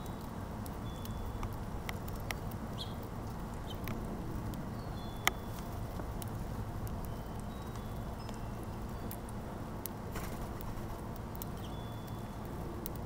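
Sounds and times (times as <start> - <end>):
bird chirps: 2.8 - 3.0.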